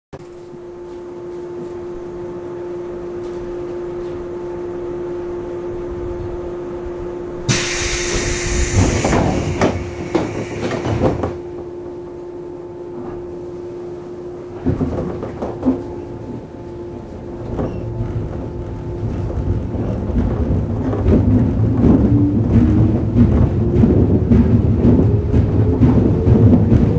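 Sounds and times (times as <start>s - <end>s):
electric train humming: 0.6s - 26.9s
clunks: 7.5s - 11.4s
loud hiss of air: 7.5s - 11.4s
sliding doors closing: 7.5s - 11.4s.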